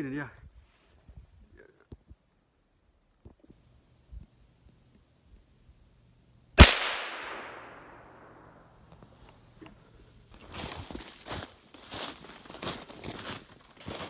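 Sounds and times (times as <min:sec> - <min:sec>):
rifle shot echoing: 0:06.6 - 0:08.8.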